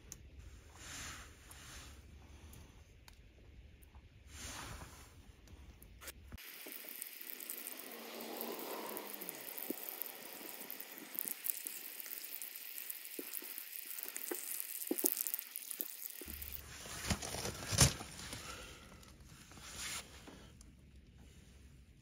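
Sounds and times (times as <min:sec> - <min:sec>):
hose water splashing on pebbles: 0:06.4 - 0:18.6.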